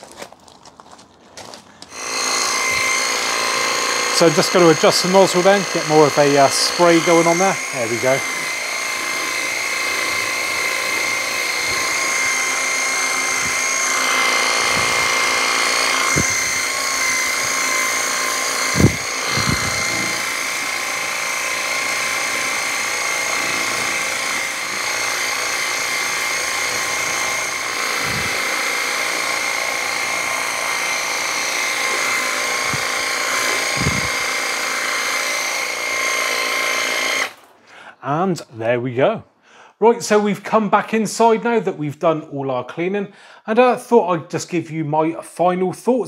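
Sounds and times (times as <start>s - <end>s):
pressure washer motor whine: 1.9s - 37.5s.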